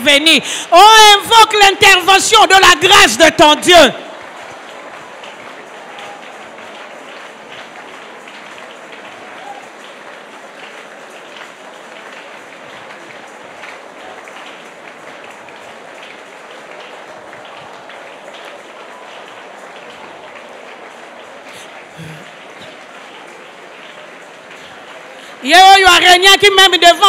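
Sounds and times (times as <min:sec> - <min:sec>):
congregation praying aloud: 0:00.0 - 0:27.0.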